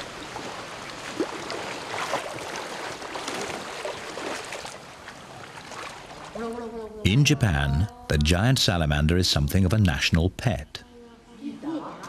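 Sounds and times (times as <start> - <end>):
faint splashes and knocks: 0.0 - 6.4
river water rushing: 0.0 - 6.4.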